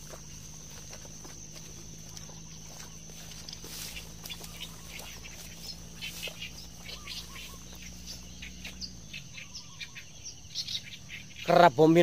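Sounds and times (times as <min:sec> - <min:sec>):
insect high-pitched drone: 0:00.0 - 0:12.0
small birds chirping: 0:00.0 - 0:12.0.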